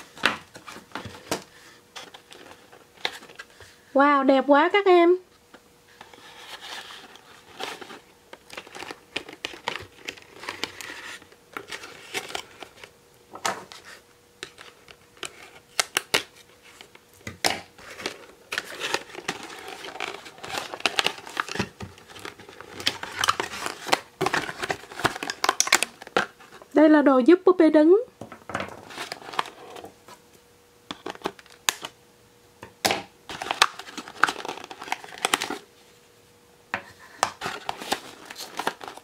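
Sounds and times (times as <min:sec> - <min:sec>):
packaging crinkling and rustling: 0:00.0 - 0:03.8, 0:06.0 - 0:26.7, 0:28.7 - 0:30.2, 0:30.9 - 0:32.0, 0:33.3 - 0:35.7, 0:37.2 - 0:39.0.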